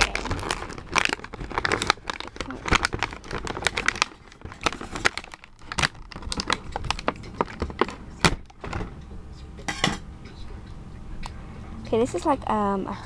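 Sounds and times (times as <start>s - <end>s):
plastic packaging crackling: 0.0s - 8.8s.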